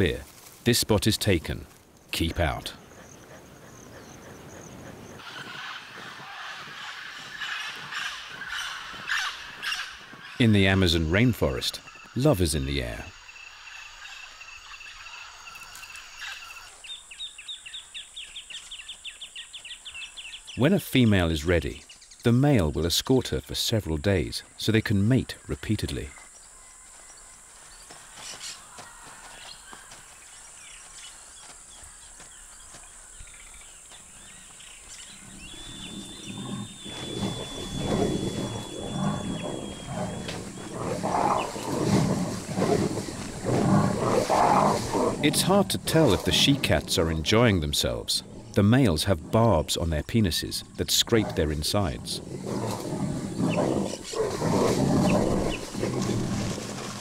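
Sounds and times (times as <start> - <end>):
high drone of insects: 23.7 - 49.0
big cats growling and snarling: 35.0 - 49.6, 51.0 - 57.0.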